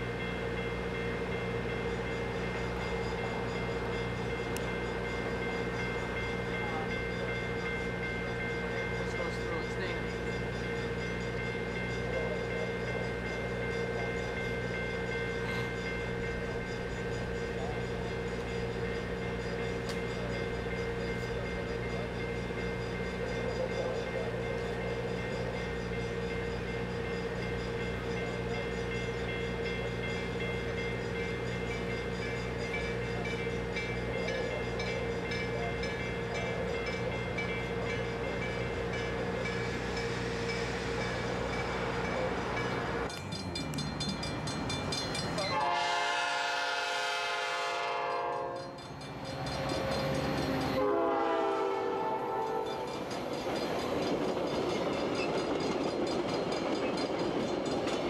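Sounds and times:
diesel train engine humming: 0.0 - 58.0
train horn blasts: 45.5 - 48.8, 50.8 - 52.9.

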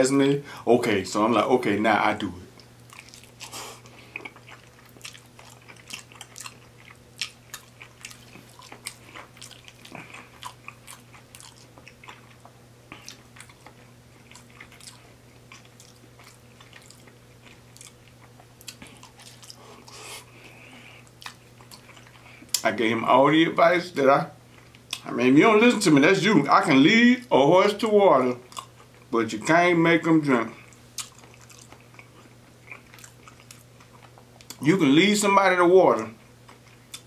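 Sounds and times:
person chewing food: 2.6 - 22.6, 24.4 - 25.1, 28.4 - 29.1, 30.6 - 34.6, 36.2 - 37.0.

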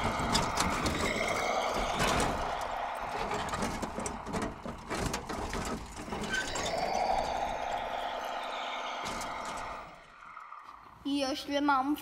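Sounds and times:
clicks and knocks from tracks: 1.8 - 6.4.

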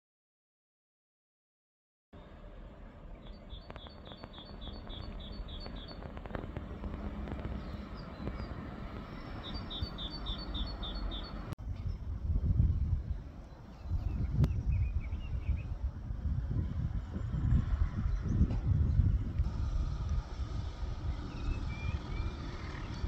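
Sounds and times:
low outdoor rumble: 2.2 - 23.0
songbird chirping: 3.1 - 12.0, 21.0 - 23.0.

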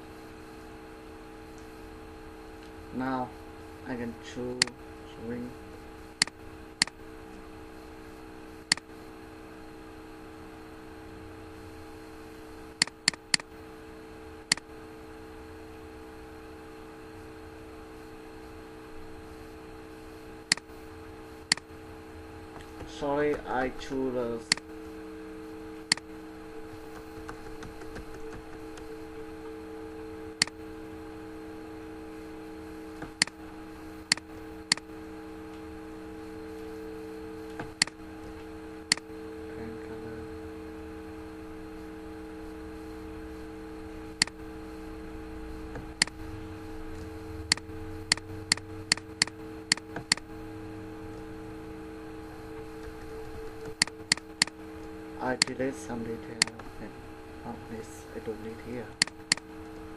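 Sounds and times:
steady low hum: 0.0 - 59.9
computer mouse clicks: 8.7 - 8.9, 12.8 - 13.5, 21.5 - 21.7, 25.9 - 26.1, 26.9 - 28.9, 34.1 - 34.9, 37.5 - 38.0, 47.0 - 50.2, 52.8 - 54.6, 59.0 - 59.5.

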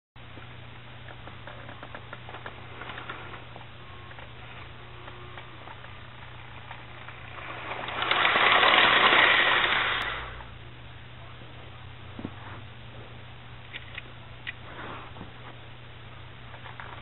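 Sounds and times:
steady low hum: 0.2 - 17.0
model train motor whir: 4.8 - 10.5.

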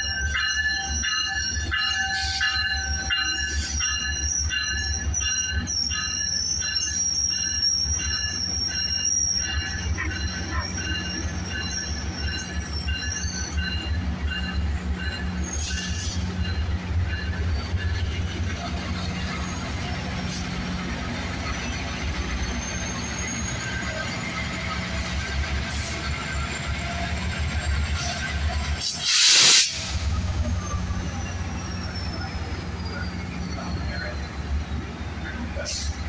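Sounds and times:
low rumble of moving train: 0.0 - 36.0
train wheels squealing on rails: 0.0 - 36.0.

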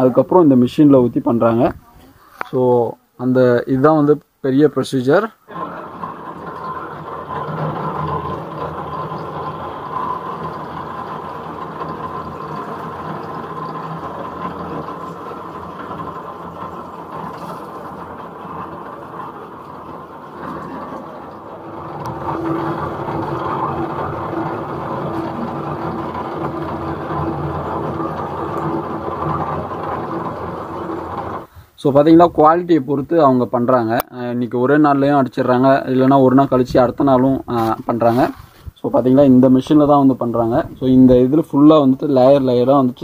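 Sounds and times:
steady hum: 0.0 - 32.6
roller mill running: 5.5 - 32.6.

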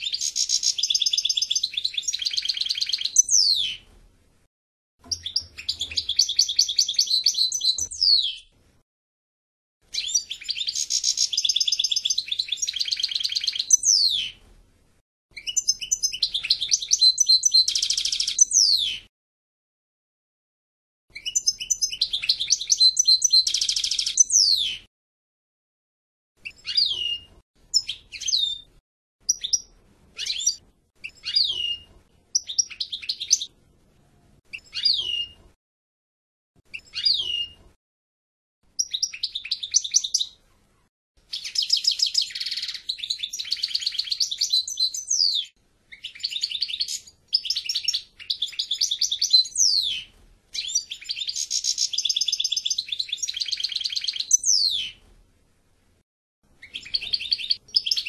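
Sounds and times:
goldfinch singing: 0.0 - 3.8, 5.0 - 8.5, 9.9 - 14.4, 15.4 - 19.0, 21.2 - 24.8, 26.4 - 28.7, 29.3 - 33.5, 34.5 - 35.4, 36.7 - 37.6, 38.8 - 40.4, 41.3 - 55.0, 56.6 - 58.0.

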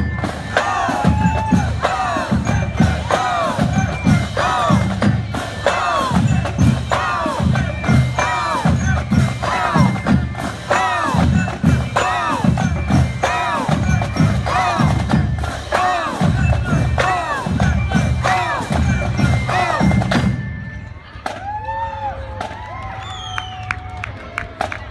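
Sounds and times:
marching drumline cadence: 0.0 - 23.8.

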